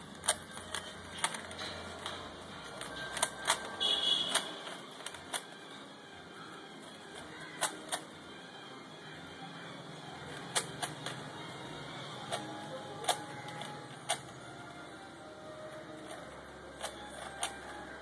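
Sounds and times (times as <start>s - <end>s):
puzzle cube clicking: 0.0s - 5.8s, 6.8s - 8.2s, 10.2s - 11.3s, 12.2s - 14.7s, 15.6s - 18.0s.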